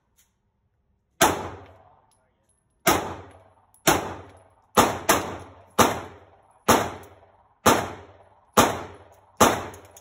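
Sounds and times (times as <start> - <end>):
handgun shots echoing: 1.2 - 1.9, 2.8 - 10.0.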